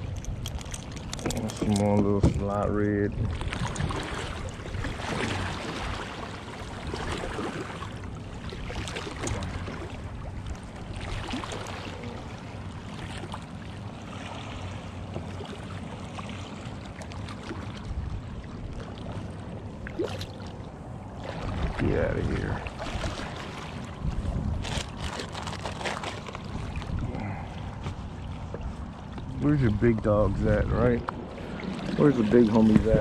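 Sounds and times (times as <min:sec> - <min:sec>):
wind on microphone: 0:00.0 - 0:06.1, 0:21.3 - 0:25.2, 0:26.4 - 0:33.0
water lapping against kayak hull: 0:00.0 - 0:33.0
small splash: 0:03.3 - 0:10.0, 0:11.0 - 0:12.3, 0:19.8 - 0:24.0.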